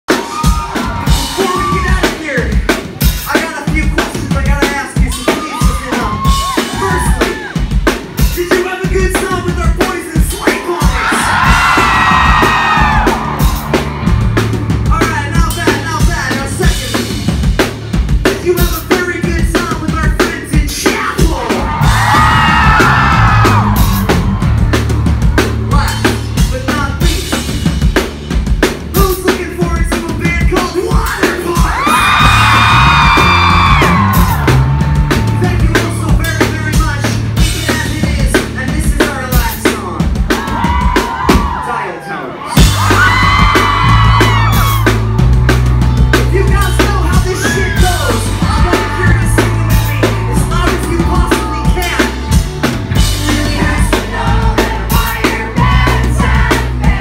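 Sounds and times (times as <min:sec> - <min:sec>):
fast drum kit: 0:00.0 - 0:41.7, 0:42.5 - 0:57.0
low bass: 0:00.6 - 0:41.5, 0:42.6 - 0:57.0
person singing: 0:46.6 - 0:52.4, 0:53.0 - 0:57.0.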